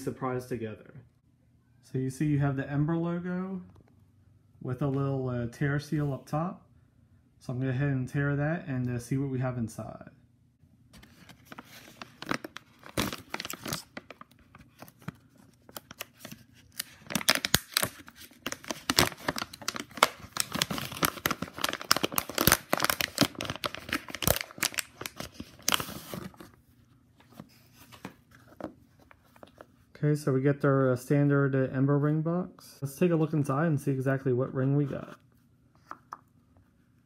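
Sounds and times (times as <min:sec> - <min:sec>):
plastic pouch tearing and crinkling: 0:11.3 - 0:26.4.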